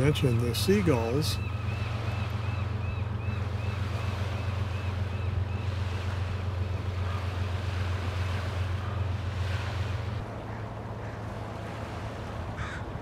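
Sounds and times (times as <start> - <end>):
distant freight train drone: 0.0 - 13.0
waves lapping: 0.0 - 13.0
gull calling: 0.8 - 5.8, 6.9 - 7.4, 12.6 - 13.0.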